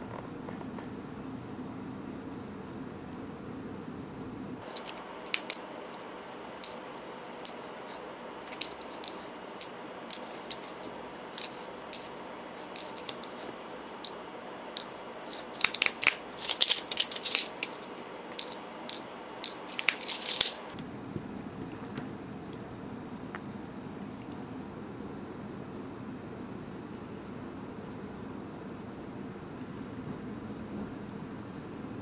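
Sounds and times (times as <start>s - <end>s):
metal charms clicking on plastic: 4.6s - 7.6s, 8.4s - 14.2s, 14.8s - 20.8s.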